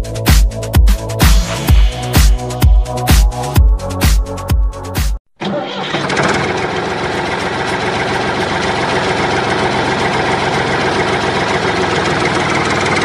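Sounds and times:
tractor engine idling: 5.4 - 13.0.

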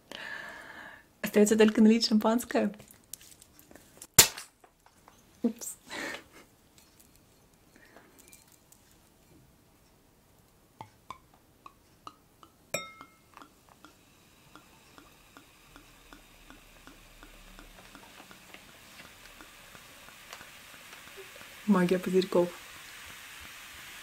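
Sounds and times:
glass clink: 7.0 - 8.6, 12.1 - 15.1
champagne pouring and fizzing: 12.8 - 24.0.

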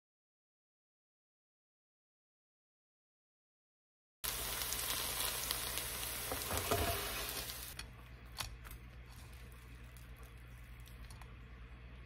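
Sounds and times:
pancake sizzling in a pan: 4.2 - 7.8.

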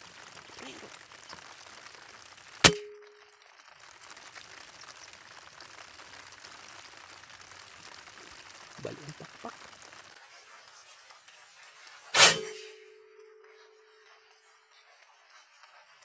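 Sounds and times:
air rifle shot: 2.6 - 3.1, 12.2 - 13.0
metallic ring: 12.2 - 13.8.

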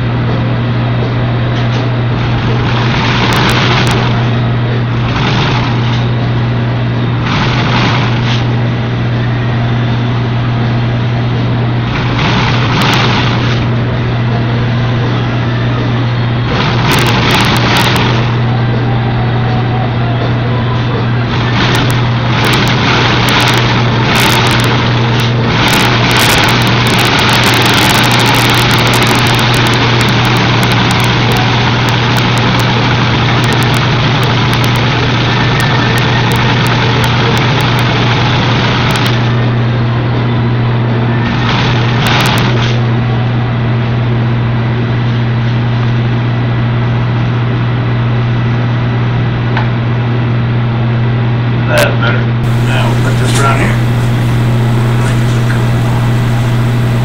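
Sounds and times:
hiss: 52.4 - 57.0
machine motor humming: 52.4 - 57.0.

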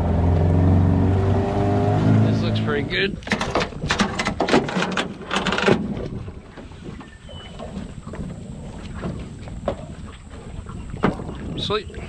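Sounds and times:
wind noise on microphone: 2.6 - 12.0
anchor chain clattering: 3.2 - 5.9.

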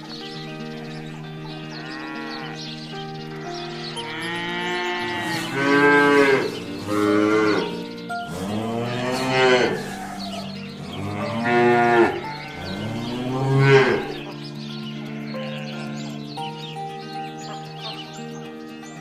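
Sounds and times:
cows mooing: 1.6 - 14.4.

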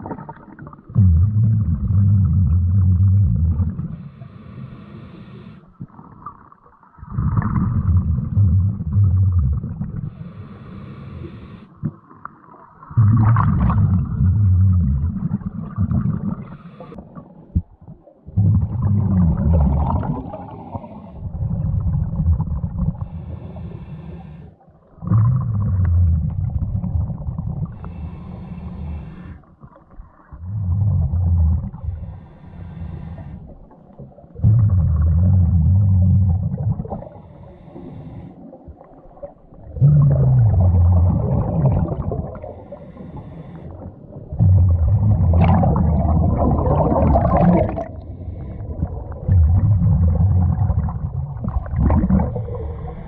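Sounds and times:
exhaled bubbles burbling: 0.0 - 4.0, 5.8 - 10.2, 11.8 - 23.1, 24.9 - 28.0, 29.6 - 32.2, 33.4 - 37.2, 38.5 - 43.1, 43.7 - 53.0
regulator inhale hiss: 3.9 - 5.8, 10.1 - 11.8, 16.4 - 17.0, 23.0 - 24.6, 27.7 - 29.5, 31.8 - 33.8, 37.0 - 38.6, 42.4 - 44.1, 52.3 - 53.0.

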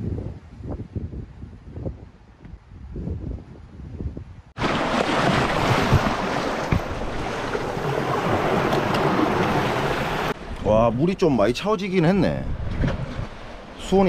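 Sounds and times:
low rumble of sea: 0.0 - 14.0
wind and surf roar: 3.5 - 11.4, 12.0 - 14.0.

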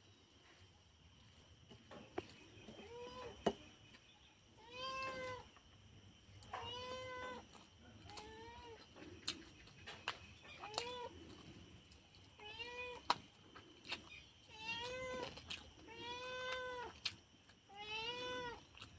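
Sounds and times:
cat meowing: 4.6 - 5.5, 6.5 - 7.4, 17.7 - 18.6.

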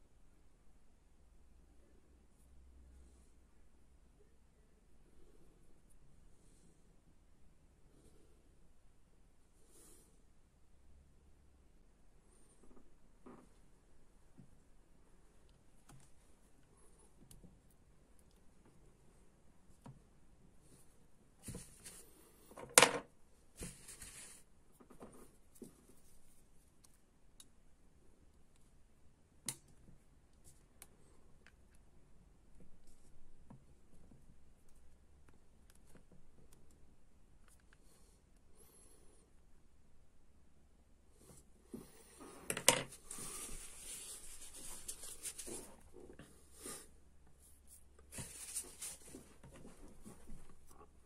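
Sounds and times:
scratchy rubbing and handling: 20.6 - 22.6, 23.6 - 26.9, 41.2 - 51.0.

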